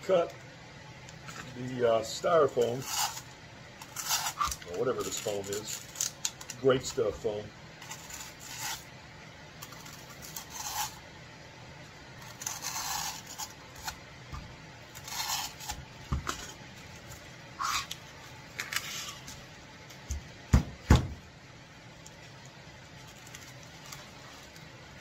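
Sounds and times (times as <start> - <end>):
blade scraping through foam: 2.6 - 3.3, 7.9 - 8.9, 10.2 - 11.0, 12.2 - 13.9, 15.0 - 15.8.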